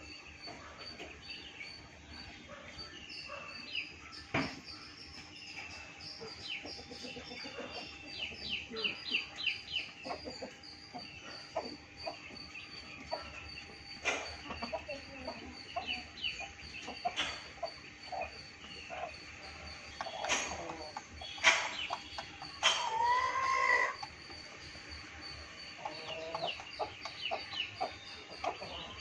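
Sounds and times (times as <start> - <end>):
chickens clucking: 0.0 - 29.0
small birds chirping: 0.0 - 29.0
beak tapping ground and feeder: 18.7 - 25.1.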